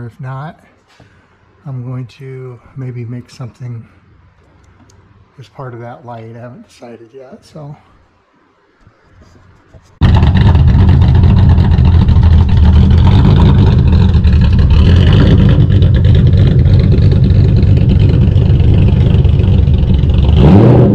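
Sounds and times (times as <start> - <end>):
car engine rumbling: 10.0 - 20.9.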